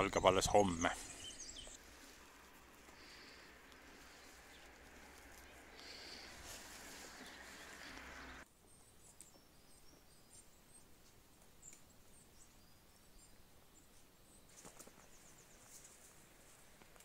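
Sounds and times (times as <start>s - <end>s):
forest ambience: 0.0s - 17.0s
high bird chirps: 0.6s - 10.8s.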